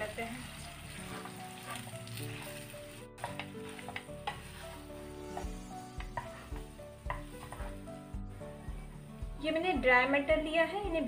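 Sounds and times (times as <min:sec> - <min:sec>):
light sizzle: 0:00.0 - 0:11.0
soft background music: 0:00.0 - 0:11.0
wooden spatula scraping a pan: 0:00.1 - 0:09.0.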